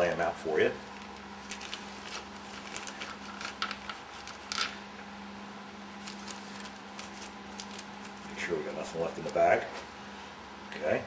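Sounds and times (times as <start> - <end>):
plastic bag crinkling: 0.9 - 4.8, 6.0 - 9.5.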